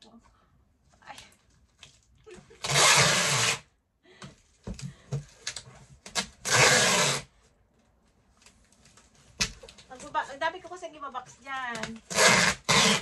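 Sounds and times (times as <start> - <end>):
packing tape ripped off roll: 2.6 - 3.7, 5.5 - 7.3, 11.8 - 13.0.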